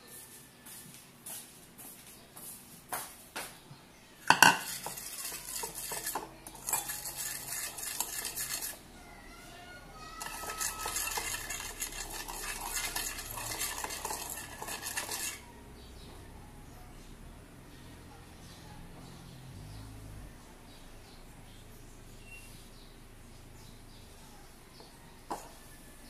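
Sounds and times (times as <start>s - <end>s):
metal spoon stirring in bowl: 4.2s - 8.9s, 9.8s - 15.6s
spoon clinking against bowl: 4.3s - 8.8s, 10.2s - 15.4s.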